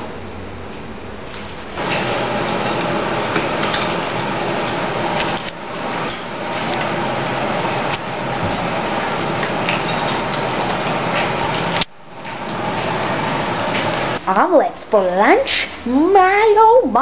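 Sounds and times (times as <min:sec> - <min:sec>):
eggs sizzling in a pan: 0:01.8 - 0:14.2.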